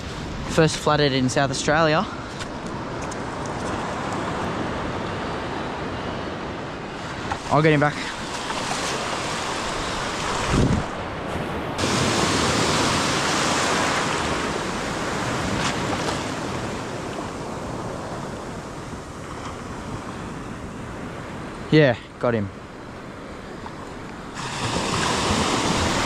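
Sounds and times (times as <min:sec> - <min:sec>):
wave rushing in: 0:06.9 - 0:20.7, 0:24.2 - 0:26.0
surf washing in shallow water: 0:06.9 - 0:21.8, 0:22.6 - 0:26.0
wind on microphone: 0:08.2 - 0:21.4, 0:23.8 - 0:26.0.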